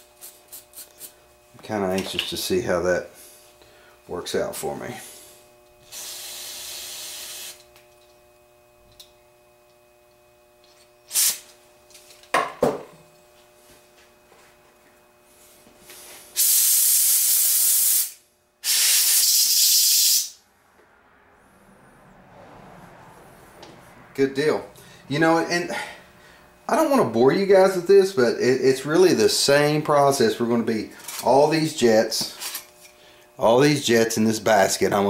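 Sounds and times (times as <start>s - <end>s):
aerosol spraying: 0.0s - 1.2s, 5.8s - 7.6s, 11.1s - 11.5s, 15.9s - 20.4s
compressed air blasts: 5.0s - 7.7s, 11.1s - 11.6s, 15.9s - 20.4s
short hiss: 11.1s - 11.5s, 15.9s - 20.3s.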